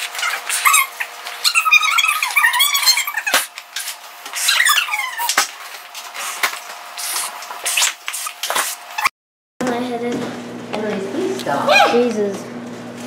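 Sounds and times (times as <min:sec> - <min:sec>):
rubber balloon squeaks: 0:00.0 - 0:03.5, 0:04.4 - 0:05.4.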